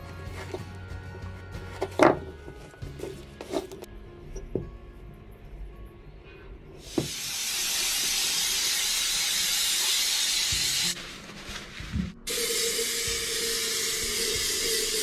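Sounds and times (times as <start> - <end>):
aerosol spray hissing: 6.8 - 11.0, 12.3 - 15.0.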